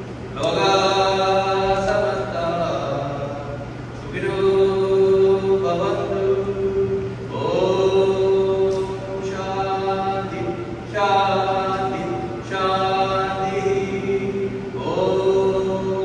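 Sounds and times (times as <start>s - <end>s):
man chanting: 0.4s - 16.0s.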